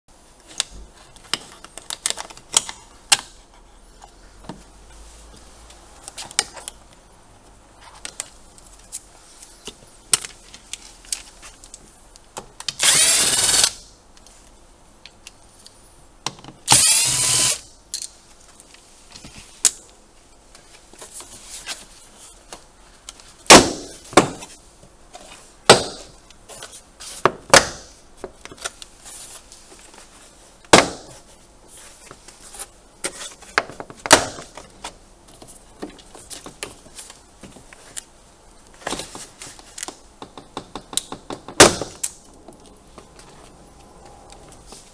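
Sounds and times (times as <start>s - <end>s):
power screwdriver spinning: 12.8s - 13.8s, 16.7s - 17.6s.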